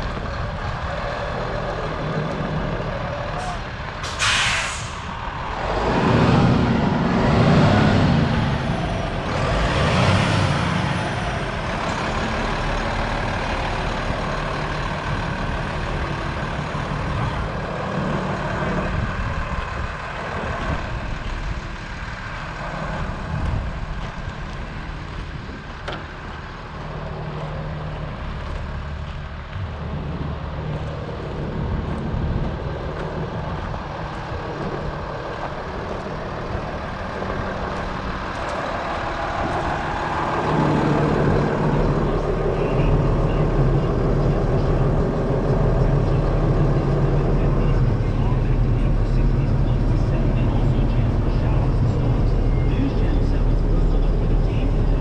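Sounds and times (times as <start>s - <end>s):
diesel truck engine idling: 0.0s - 55.0s
loud rushing noise: 3.4s - 11.4s.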